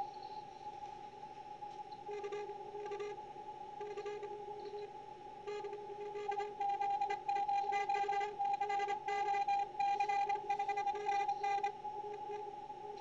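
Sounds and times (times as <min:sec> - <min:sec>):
radio band hiss: 0:00.0 - 0:13.0
fainter lower morse tone: 0:01.8 - 0:13.0
morse code tone: 0:02.1 - 0:03.2, 0:03.8 - 0:04.9, 0:05.5 - 0:12.5.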